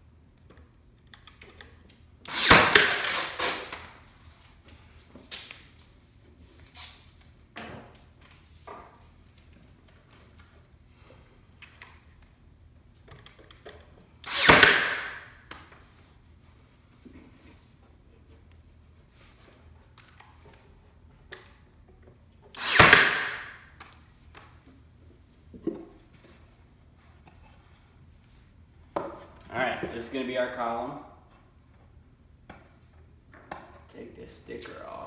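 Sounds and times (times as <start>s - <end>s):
nail gun firing: 2.2s - 3.9s, 14.2s - 15.4s, 22.5s - 23.6s.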